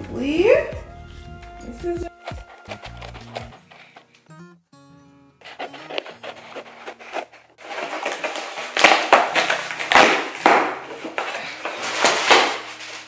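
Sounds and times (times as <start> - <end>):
package crinkling and rustling: 2.2 - 4.2, 5.4 - 13.0.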